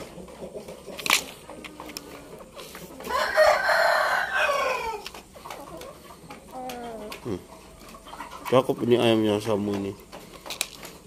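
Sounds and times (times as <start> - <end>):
rooster crowing: 3.1 - 5.1.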